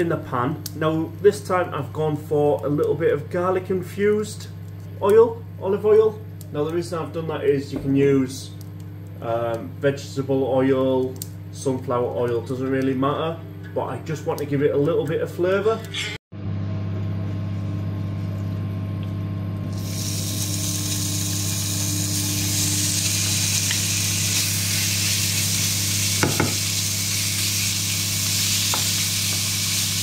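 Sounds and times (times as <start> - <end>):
steady low hum: 0.0 - 29.9
oil sizzling in frying pan: 19.7 - 30.0.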